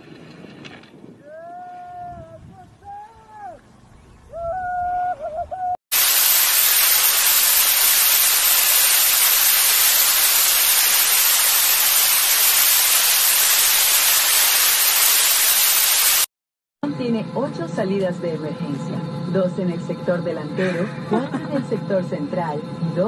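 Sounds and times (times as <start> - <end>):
loud rushing hiss: 5.9 - 16.3.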